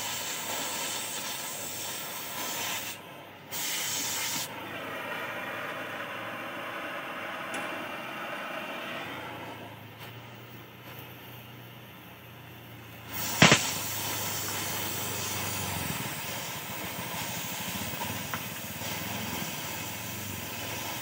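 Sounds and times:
cutting torch hissing: 0.0 - 7.2, 12.9 - 21.0.

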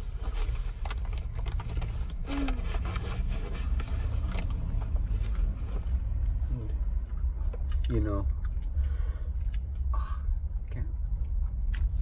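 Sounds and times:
food wrappers rustling: 0.0 - 5.3.

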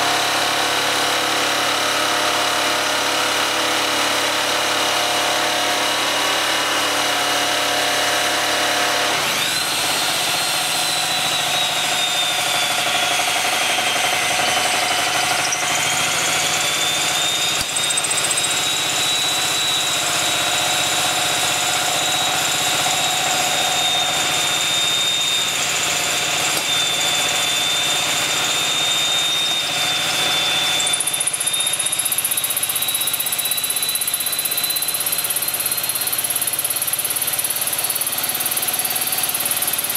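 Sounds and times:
power tool whining: 0.0 - 39.9
portable generator engine running: 9.4 - 28.6.

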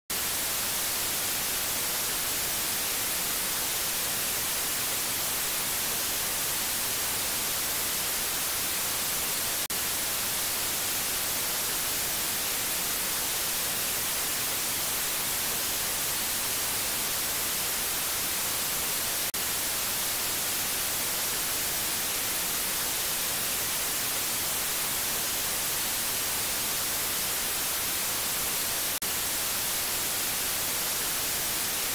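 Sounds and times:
white noise hiss: 0.1 - 31.9.

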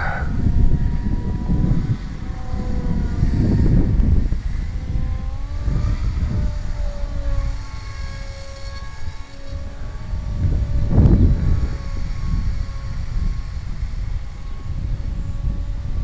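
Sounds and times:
model plane motor whining: 0.0 - 16.0
wind buffeting microphone: 0.0 - 16.0.

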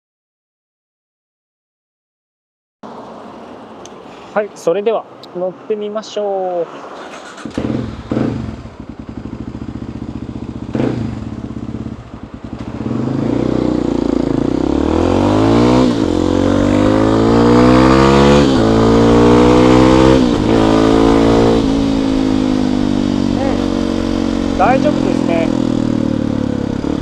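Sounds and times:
motorcycle engine accelerating: 7.0 - 27.0.

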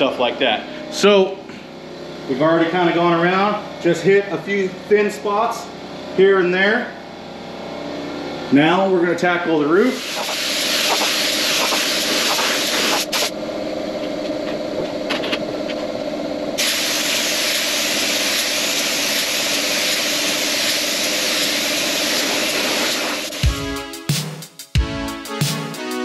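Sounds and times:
steady hum: 0.0 - 24.0
paint spray gun hissing: 9.9 - 13.3, 16.6 - 23.6.

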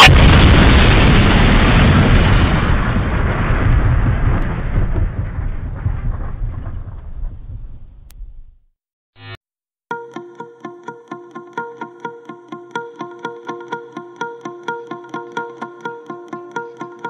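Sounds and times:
rumbling boom: 0.0 - 8.7.

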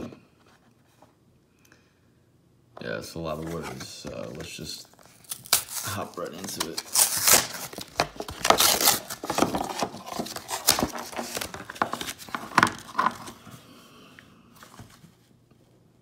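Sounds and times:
packaging rustling and crinkling: 3.3 - 13.5.

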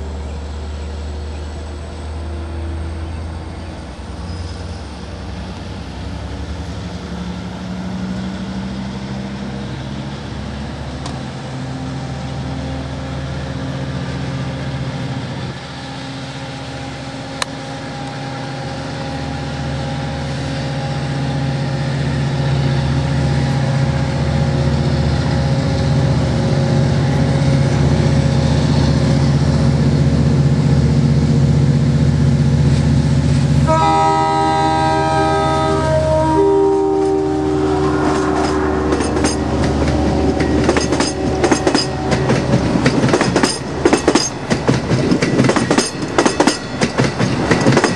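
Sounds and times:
approaching train engine: 0.0 - 47.9
diesel locomotive engine droning: 0.0 - 47.9
locomotive horn: 33.6 - 44.2.

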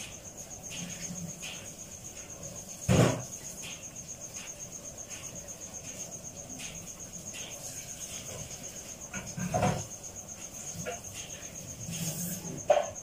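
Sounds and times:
cricket chirping: 0.0 - 13.0.

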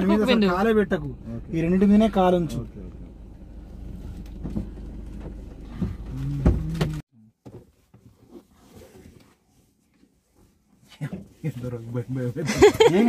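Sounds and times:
car engine rumble: 0.0 - 7.0
road noise inside car: 0.0 - 13.0
faint knocks and rustles: 4.0 - 11.6.

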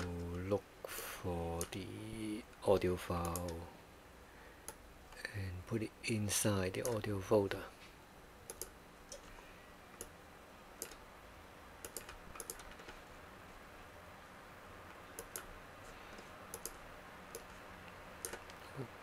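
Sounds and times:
faint room hiss: 0.0 - 19.0
computer mouse clicking: 1.6 - 1.8, 3.2 - 3.6, 4.6 - 4.8, 6.8 - 7.0, 8.5 - 9.4, 10.0 - 10.2, 10.8 - 11.0, 11.8 - 13.0, 14.9 - 15.5, 16.1 - 18.6.

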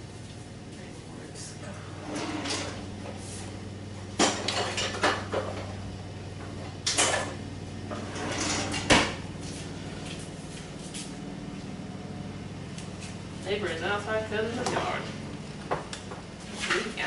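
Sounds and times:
distant lawn mower drone: 0.0 - 16.5
kitchenware clattering: 4.2 - 5.6.

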